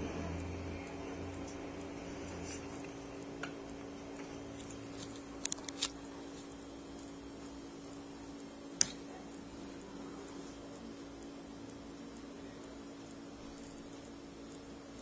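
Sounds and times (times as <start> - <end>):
steady low hum: 0.0 - 15.0
small clicks: 4.6 - 6.1.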